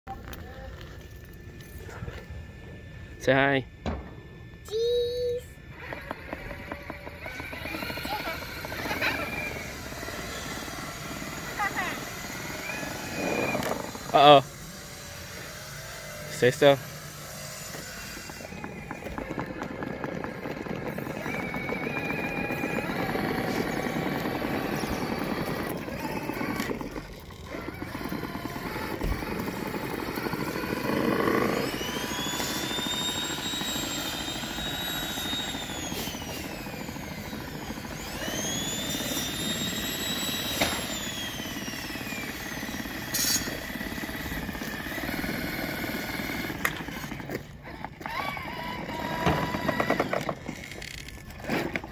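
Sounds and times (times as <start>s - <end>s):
wheels rolling on asphalt: 0.1s - 3.1s, 5.6s - 51.9s
electric motor and gear whine: 0.1s - 51.9s.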